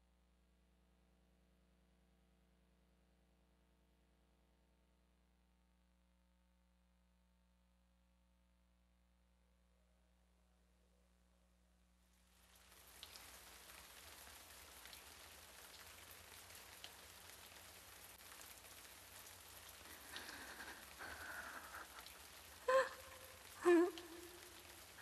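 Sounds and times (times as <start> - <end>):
faint steady hiss: 6.8 - 25.0.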